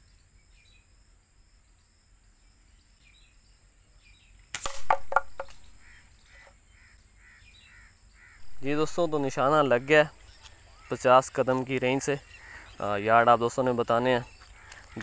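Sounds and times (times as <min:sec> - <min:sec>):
air rifle shot crack: 0:04.6 - 0:05.7
high insect drone: 0:04.6 - 0:15.0
faint bird chirps: 0:05.5 - 0:15.0.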